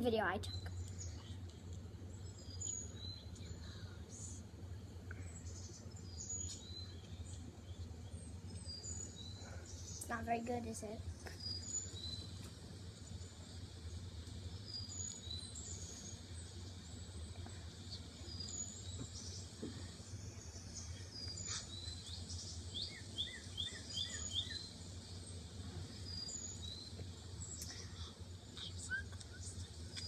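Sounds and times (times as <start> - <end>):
birds chirping: 0.0 - 30.0
steady low hum: 0.0 - 30.0.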